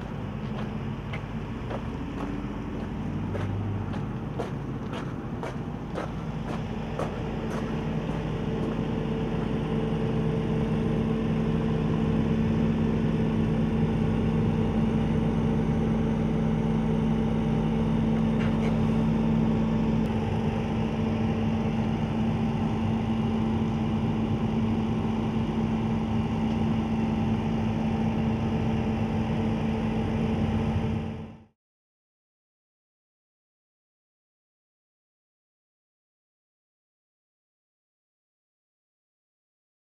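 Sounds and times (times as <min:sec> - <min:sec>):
excavator diesel engine droning: 0:00.0 - 0:31.5.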